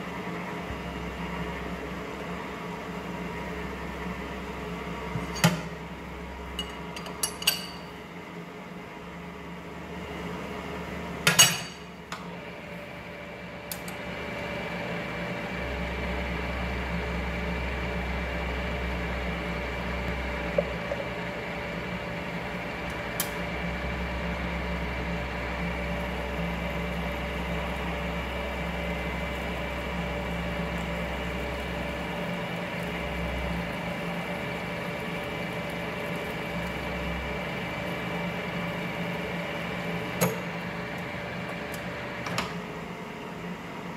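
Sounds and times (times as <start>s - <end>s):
lathe humming: 0.0s - 43.9s
lathe whine: 12.2s - 43.9s.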